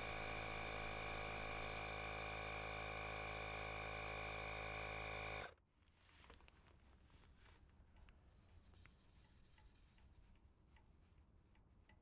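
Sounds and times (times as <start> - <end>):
air compressor humming: 0.0 - 5.0.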